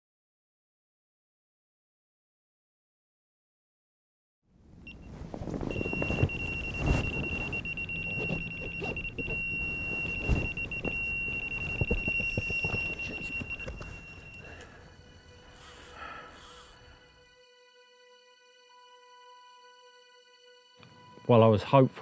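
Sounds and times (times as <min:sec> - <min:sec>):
rustling and knocks: 0:05.1 - 0:14.7
bite alarm beep: 0:05.7 - 0:14.9
continuous high-pitched alarm tone: 0:05.7 - 0:16.8.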